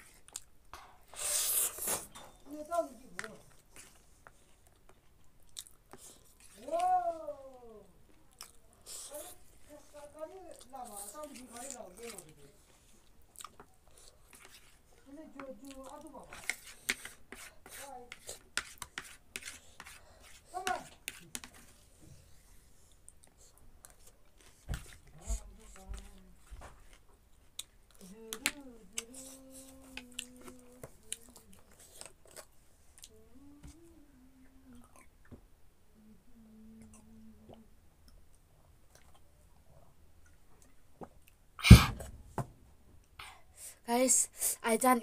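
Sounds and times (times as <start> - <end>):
quiet chewing: 0.0 - 2.2, 3.1 - 35.4, 36.4 - 41.5
person humming: 28.0 - 31.6, 33.1 - 35.0, 35.9 - 37.8.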